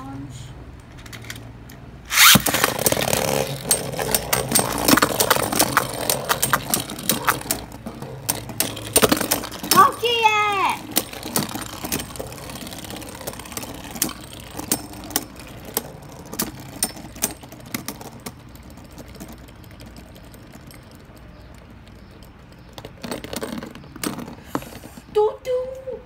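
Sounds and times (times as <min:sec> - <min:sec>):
spinning tops clacking: 0:02.1 - 0:22.5.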